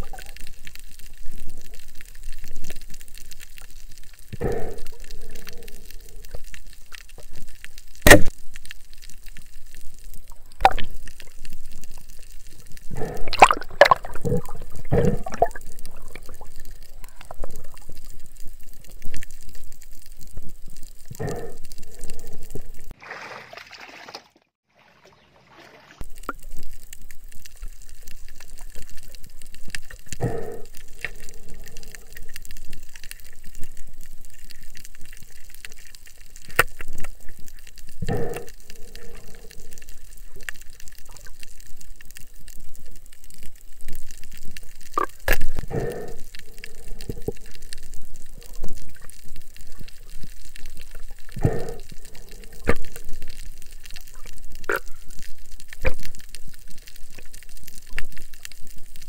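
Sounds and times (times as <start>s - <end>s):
underwater water wash: 0.0s - 24.1s, 25.9s - 59.0s
water gushing surge: 12.9s - 17.8s.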